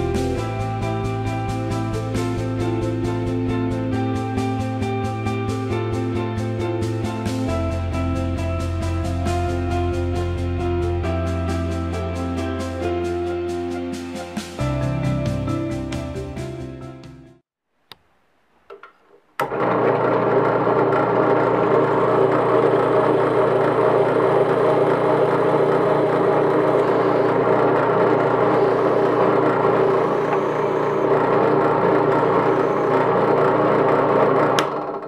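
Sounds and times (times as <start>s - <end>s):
drill press boring into wood: 19.4s - 35.0s.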